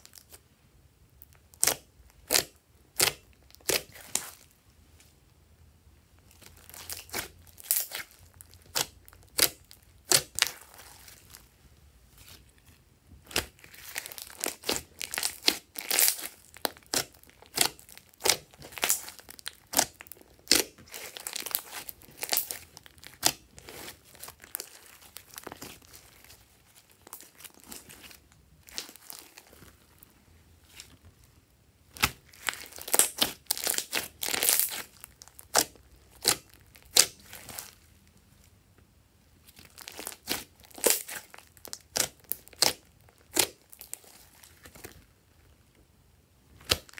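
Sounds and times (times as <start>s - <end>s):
slime squishing and popping: 6.5s - 11.2s, 13.2s - 26.4s, 31.9s - 37.8s, 39.6s - 44.9s.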